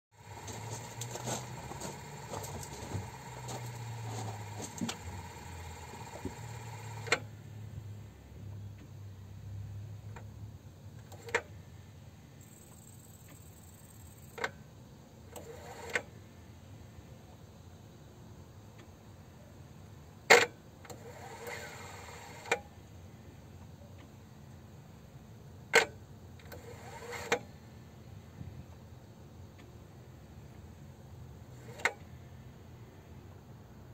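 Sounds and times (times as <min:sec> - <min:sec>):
compressor low hum: 0:00.2 - 0:08.6
faint high whine: 0:12.4 - 0:14.4.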